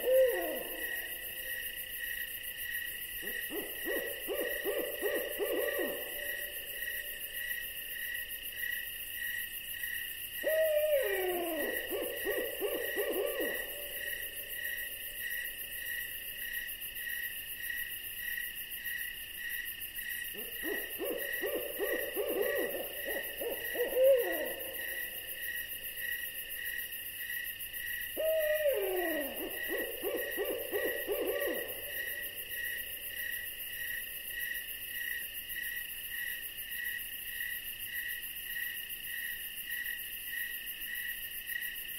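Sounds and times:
owl calling: 0:00.0 - 0:01.2, 0:03.2 - 0:06.4, 0:10.4 - 0:14.2, 0:20.4 - 0:25.2, 0:28.2 - 0:32.5
insect chirping: 0:00.0 - 0:41.9.

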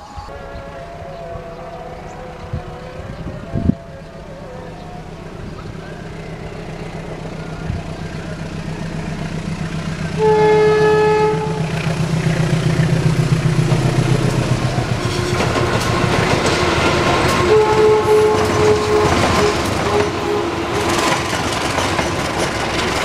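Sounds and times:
locomotive engine rumbling: 0:00.0 - 0:23.0
wheels clattering over rail joints: 0:04.9 - 0:23.0
train air horn blast: 0:09.9 - 0:21.4.

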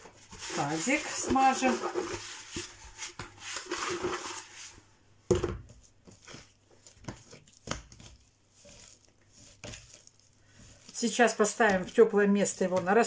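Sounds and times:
hands rubbing plastic bowl: 0:00.0 - 0:04.8, 0:05.6 - 0:13.0
dough taps and squishes: 0:05.3 - 0:13.0.

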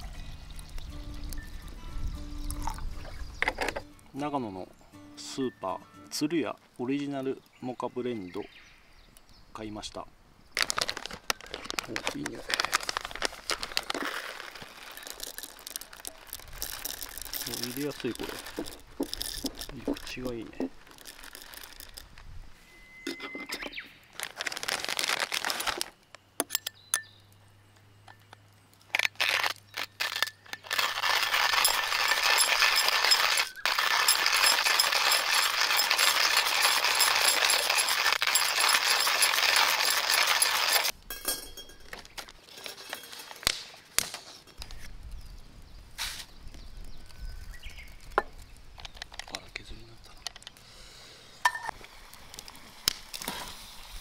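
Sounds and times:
coffee grinder crunching beans: 0:10.6 - 0:22.2, 0:24.2 - 0:25.9, 0:28.9 - 0:40.9
grinder clicks and rattles: 0:10.6 - 0:22.2, 0:28.9 - 0:43.6.

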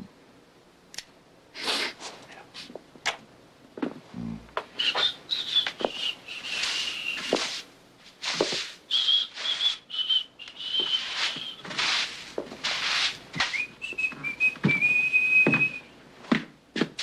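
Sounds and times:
broom sweeping a floor: 0:01.6 - 0:02.7, 0:04.8 - 0:15.8
man whistling a slow tune: 0:04.8 - 0:07.4, 0:08.9 - 0:11.6, 0:13.4 - 0:16.0.

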